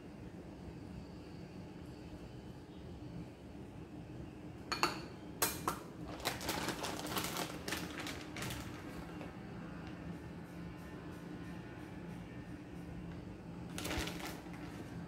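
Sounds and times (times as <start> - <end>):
plastic bag crinkling: 6.0 - 9.3, 13.7 - 15.0.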